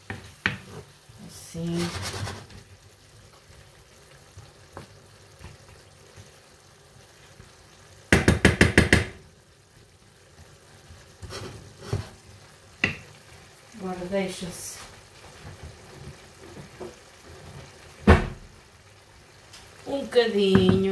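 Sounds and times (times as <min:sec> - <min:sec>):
food sizzling in a frying pan: 0:00.0 - 0:20.9
utensil knocking against pan: 0:08.1 - 0:09.2.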